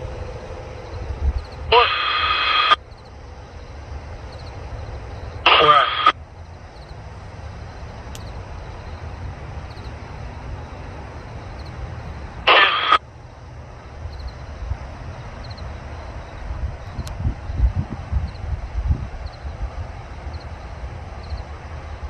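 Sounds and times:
radio squelch burst: 1.6s - 2.8s, 5.4s - 6.2s, 12.4s - 13.0s.

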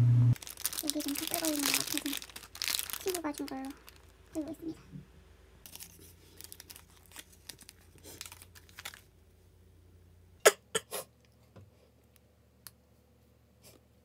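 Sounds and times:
plastic wrapper crinkling: 0.4s - 4.7s, 5.6s - 9.1s.

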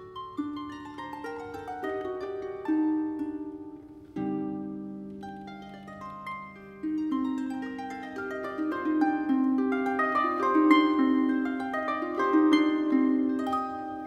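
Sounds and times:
harp playing: 0.0s - 14.0s.

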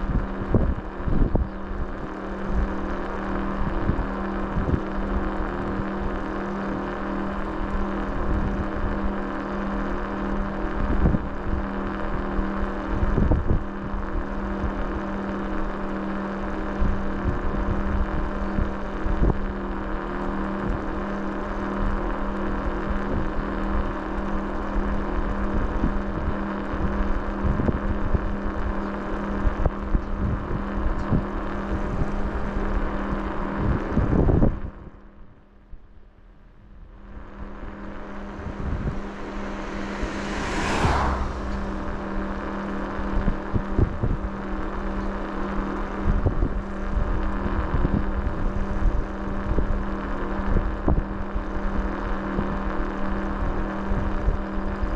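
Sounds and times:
wind on microphone: 12.9s - 14.1s, 37.0s - 44.4s
vehicle engine running: 36.8s - 47.3s.

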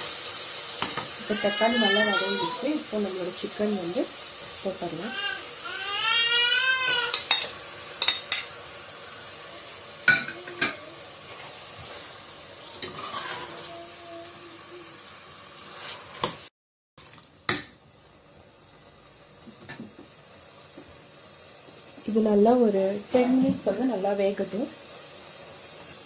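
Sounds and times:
chicken sizzling in a pot: 0.0s - 26.0s
spoon scraping and knocking pot: 7.1s - 8.5s.

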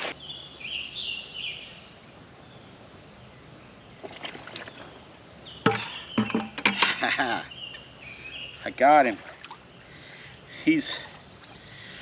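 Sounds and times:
pond water splashing: 4.0s - 5.0s, 8.8s - 9.8s, 10.8s - 12.0s
sharp knocks: 5.6s - 6.9s.

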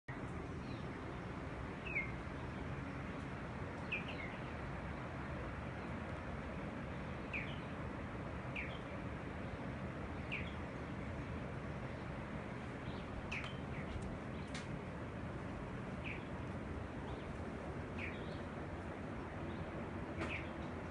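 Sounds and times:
bird high falling calls: 1.8s - 2.6s, 3.8s - 4.6s, 17.0s - 18.6s, 19.5s - 20.7s.

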